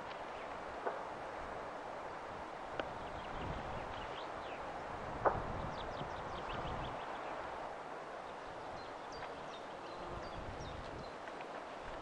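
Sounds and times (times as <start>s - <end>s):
small birds chirping: 2.8s - 7.5s, 8.2s - 11.2s.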